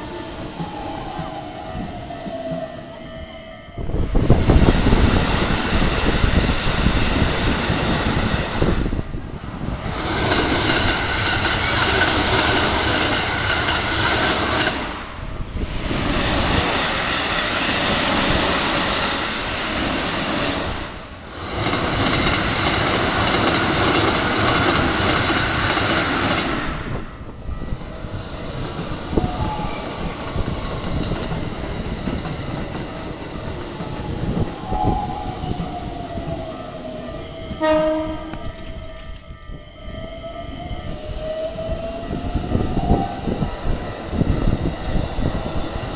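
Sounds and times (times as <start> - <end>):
trains passing at speed: 0.0 - 45.9
crossing warning bell ringing: 0.3 - 5.0, 35.5 - 42.3.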